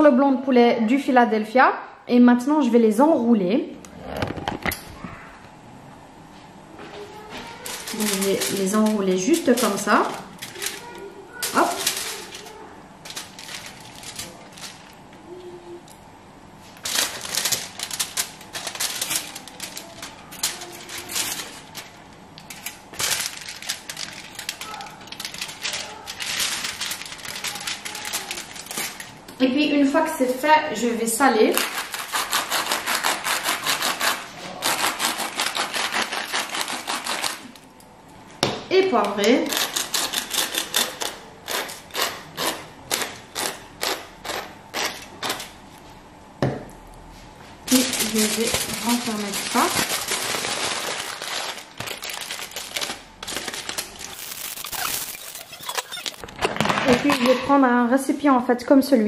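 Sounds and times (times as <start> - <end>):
aluminium foil crinkling: 7.2 - 15.9, 16.6 - 29.4, 31.5 - 37.8, 47.6 - 57.5
pepper mill grinding: 7.6 - 15.0, 16.8 - 29.1, 47.7 - 56.3.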